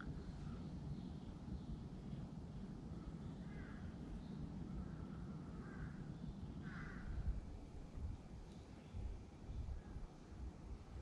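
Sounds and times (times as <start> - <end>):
crows cawing: 3.5 - 3.9, 4.8 - 7.2.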